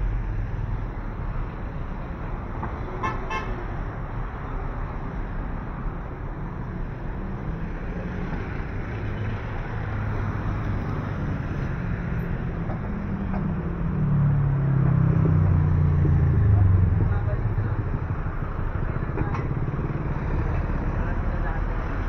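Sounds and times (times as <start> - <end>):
road traffic rumble: 0.0 - 22.0
car horn tooting: 3.0 - 3.6.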